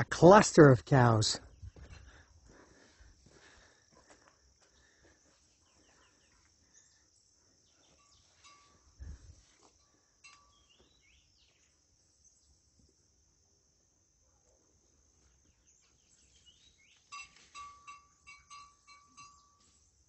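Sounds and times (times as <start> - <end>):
high insect drone: 1.5 - 20.0
bird chirps: 5.5 - 8.9, 10.2 - 12.6, 15.4 - 20.0
cowbell clinks: 8.0 - 8.8, 10.2 - 10.7, 17.1 - 19.8.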